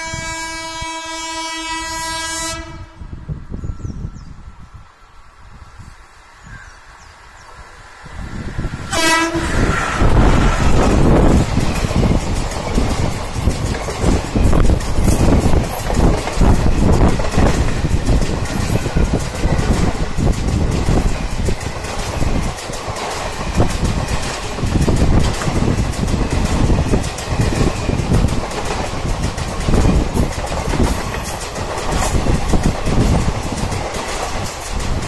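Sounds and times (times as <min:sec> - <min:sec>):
train coaches rumbling past: 0:00.0 - 0:35.0
wheels clattering on rails: 0:08.2 - 0:35.0.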